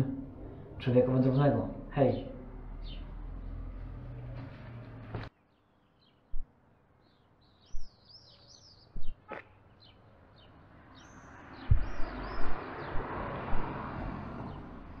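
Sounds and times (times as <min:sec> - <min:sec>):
small bird chirping: 0:07.0 - 0:13.7
rushing noise: 0:11.6 - 0:15.0
wind buffeting microphone: 0:11.6 - 0:15.0.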